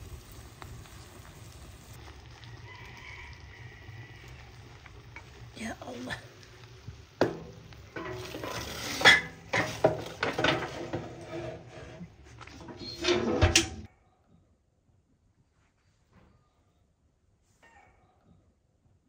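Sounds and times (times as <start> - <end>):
metal utensil clinking on cookware: 7.2 - 11.2.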